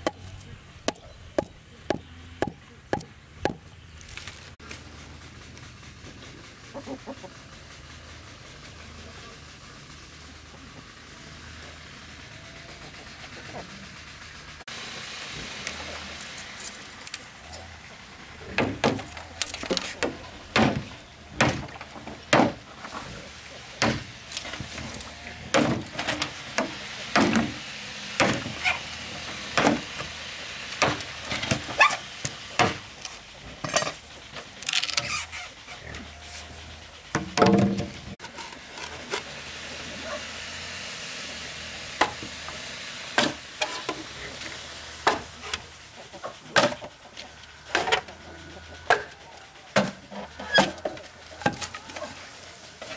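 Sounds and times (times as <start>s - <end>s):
blade knocking bamboo pole: 0.9s - 3.6s.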